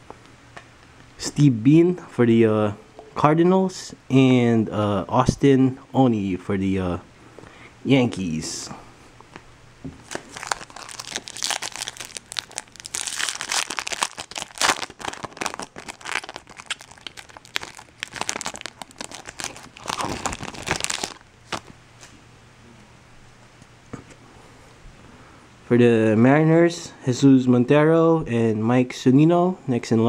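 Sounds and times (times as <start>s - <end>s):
foil wrapper crackling and rustling: 10.0s - 21.8s.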